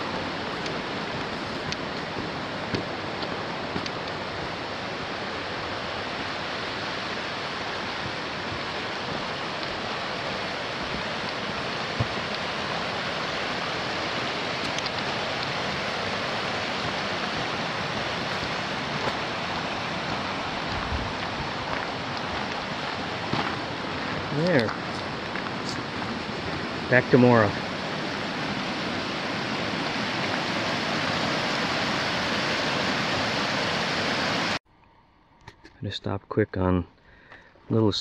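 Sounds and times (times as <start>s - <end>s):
rapids rushing over boulders: 0.0s - 34.6s
footfalls on dirt trail: 1.0s - 4.0s, 8.0s - 13.2s, 14.6s - 26.6s.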